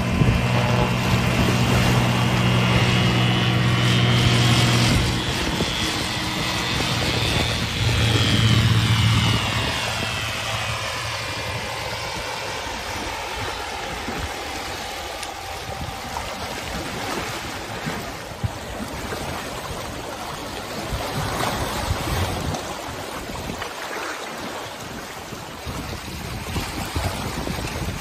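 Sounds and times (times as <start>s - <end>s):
wind buffeting microphone: 0.0s - 23.8s, 24.4s - 28.0s
light aircraft engine drone: 0.0s - 28.0s
waves lapping over rocks: 12.9s - 28.0s.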